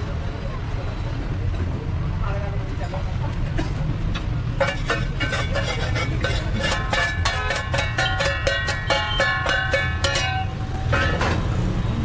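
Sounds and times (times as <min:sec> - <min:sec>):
music with bright percussive beat: 0:06.8 - 0:11.2.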